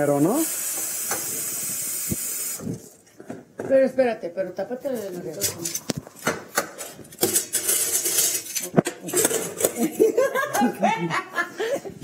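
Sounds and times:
people laughing: 0:09.6 - 0:12.0.

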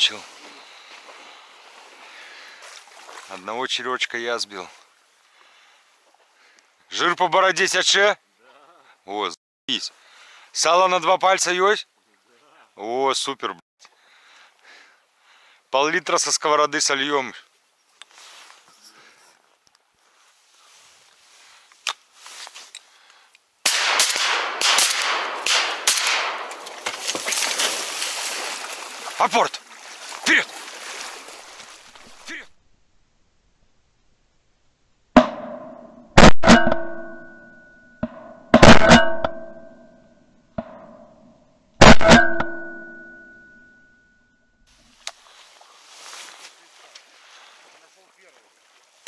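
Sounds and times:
shotgun shots: 0:23.6 - 0:26.9, 0:36.2 - 0:37.0, 0:38.6 - 0:39.3, 0:41.8 - 0:42.6
ringing tone: 0:36.5 - 0:40.2, 0:42.1 - 0:44.6.

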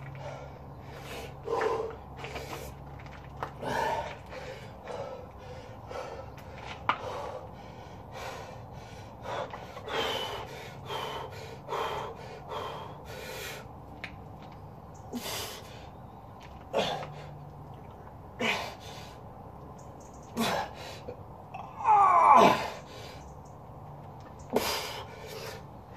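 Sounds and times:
man breathing hard: 0:00.0 - 0:02.8, 0:03.5 - 0:13.8, 0:15.1 - 0:16.0, 0:24.5 - 0:25.9
man grunting: 0:21.6 - 0:22.8.

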